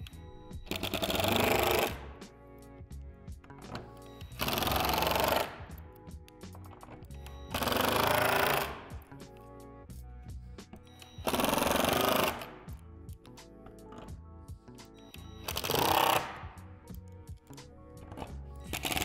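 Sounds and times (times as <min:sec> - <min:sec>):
impact driver hammering: 0:00.6 - 0:02.2, 0:03.7 - 0:05.8, 0:07.5 - 0:09.1, 0:11.1 - 0:12.7, 0:15.4 - 0:16.6, 0:18.7 - 0:19.0.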